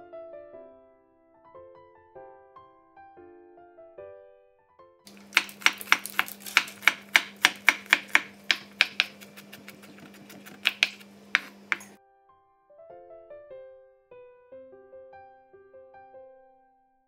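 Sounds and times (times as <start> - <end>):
knife chopping on wooden board: 5.1 - 12.0.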